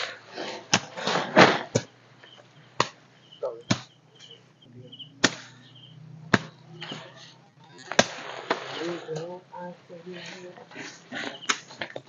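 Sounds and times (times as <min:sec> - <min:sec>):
faint high chirps: 0:02.2 - 0:07.9.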